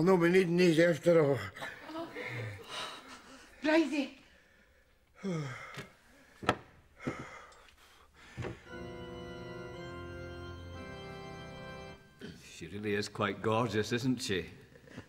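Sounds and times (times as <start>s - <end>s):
church organ chords: 8.6s - 13.3s.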